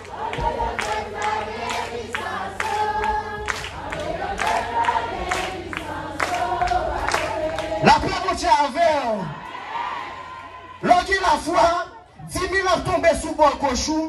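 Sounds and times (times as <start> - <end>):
sharp hand claps: 0.0 - 2.8, 3.4 - 7.8
group singing gospel chorus: 0.0 - 8.6, 9.2 - 11.5.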